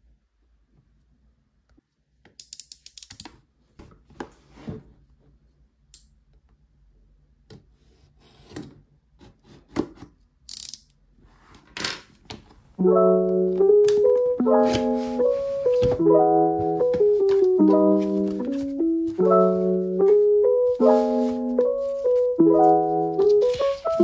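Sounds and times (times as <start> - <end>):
soft piano music: 12.8 - 24.0
hands handling cardboard box: 14.6 - 24.0.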